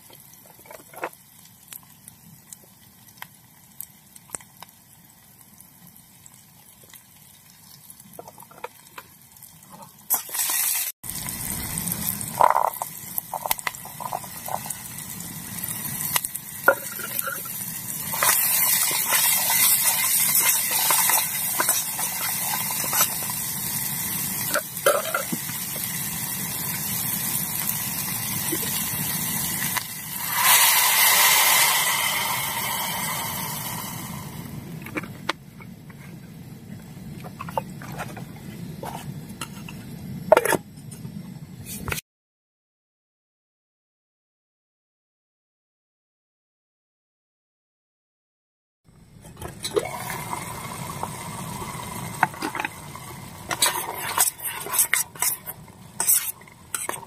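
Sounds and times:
onions sizzling in a pot: 0.0s - 34.6s, 49.7s - 57.0s
water poured into hot pot hissing: 10.0s - 34.6s, 49.7s - 57.0s
spatula scraping a pot: 53.5s - 57.0s.

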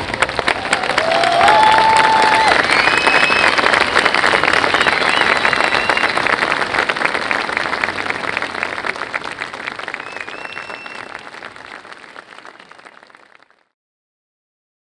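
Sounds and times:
crowd applauding: 0.0s - 13.8s
short whistles: 2.5s - 6.2s, 10.0s - 11.2s.

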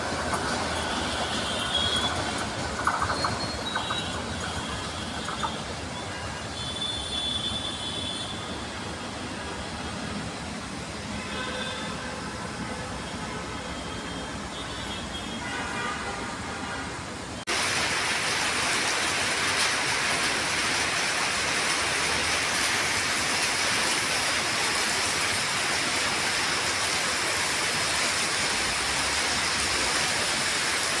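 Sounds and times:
rain falling: 0.0s - 7.4s, 17.4s - 31.0s.

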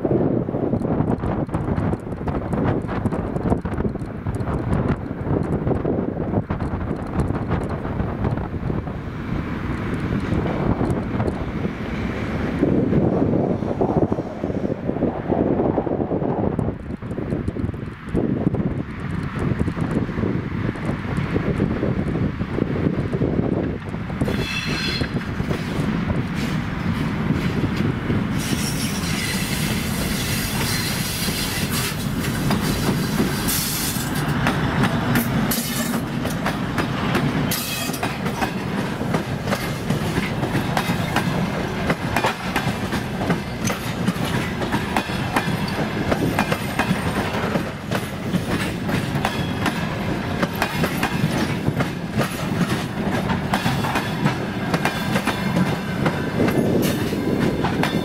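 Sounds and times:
diesel locomotive engine: 0.0s - 58.0s
train wheels clattering over rail joints: 16.5s - 58.0s.

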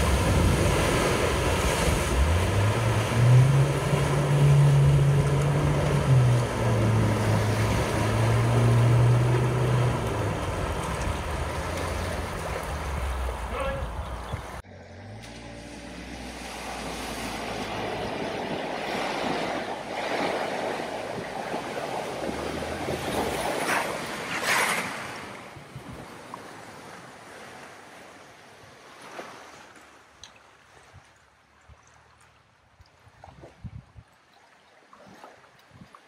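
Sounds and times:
vehicle engine running low: 0.0s - 18.9s
churned water washing: 0.0s - 36.0s.

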